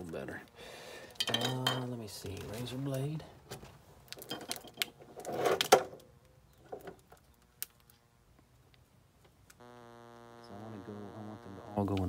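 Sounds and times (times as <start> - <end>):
wires and plastic rustling and clicking: 0.0 - 9.7.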